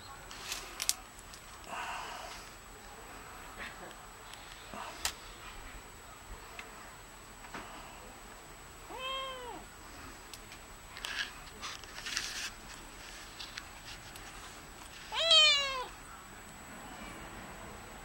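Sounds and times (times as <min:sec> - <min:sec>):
kitten meowing: 0:08.9 - 0:09.6, 0:15.1 - 0:15.9.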